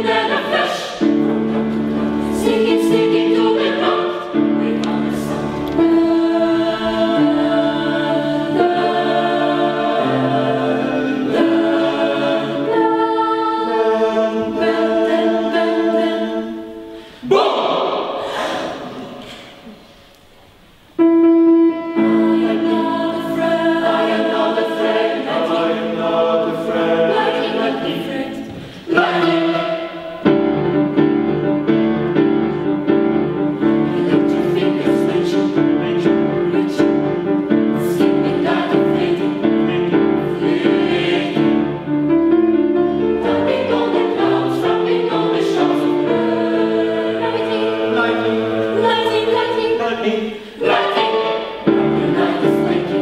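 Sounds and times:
youth choir singing: 0.0 - 19.8, 21.9 - 30.6, 33.5 - 41.9, 42.5 - 53.0.

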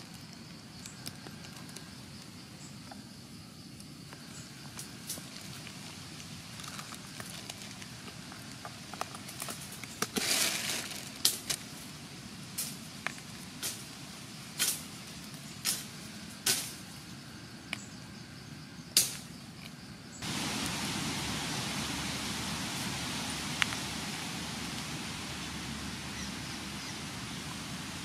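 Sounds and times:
faint steady hiss: 0.0 - 28.0
dry leaves rustling and crackling: 4.9 - 16.9.

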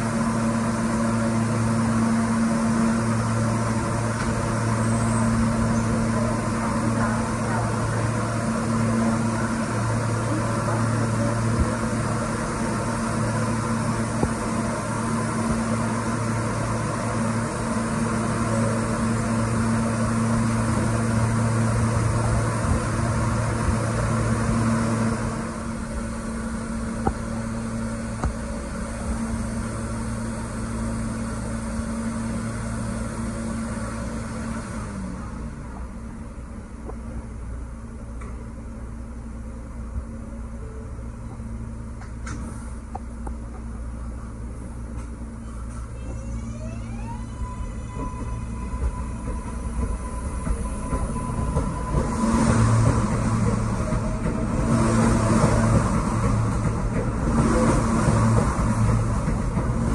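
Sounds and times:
train electrical hum: 0.0 - 59.9.

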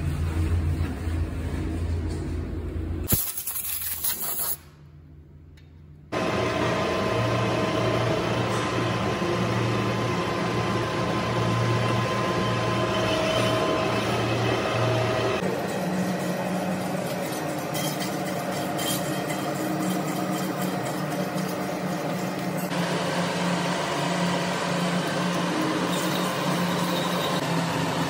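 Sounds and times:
workshop machinery humming: 4.8 - 28.0
click: 5.5 - 5.8.

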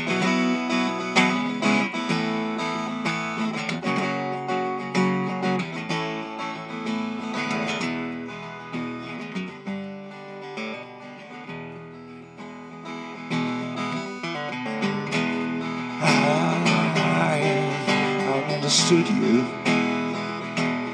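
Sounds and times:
acoustic guitar: 0.0 - 20.9
person singing: 15.8 - 20.9.

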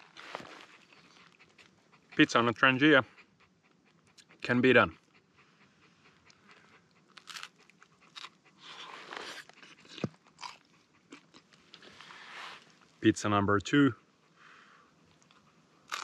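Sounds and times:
crunchy chewing of pizza crust: 0.0 - 1.8, 6.2 - 12.9, 15.1 - 16.0.

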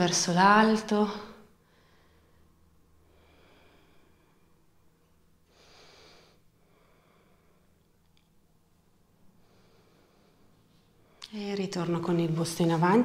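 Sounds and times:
soft breathing through nose: 9.3 - 11.2.

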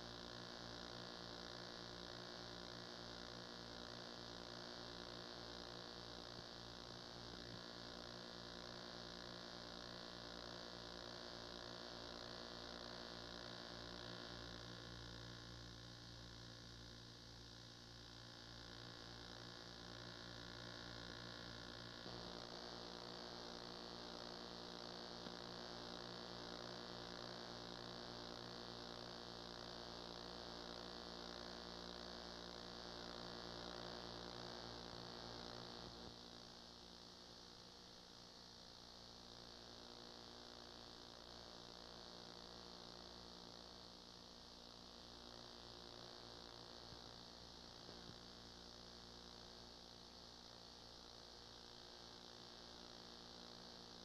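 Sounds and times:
electrical hum: 0.0 - 36.4.

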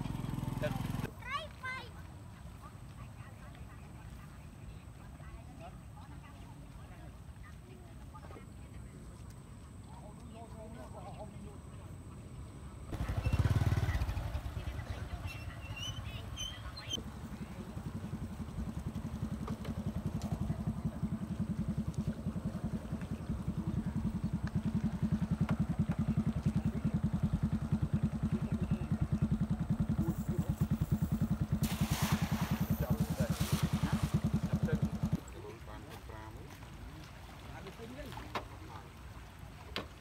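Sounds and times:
small engine running: 0.0 - 1.1, 12.9 - 16.4, 17.0 - 35.6
cast net splashing into water: 31.5 - 34.6.

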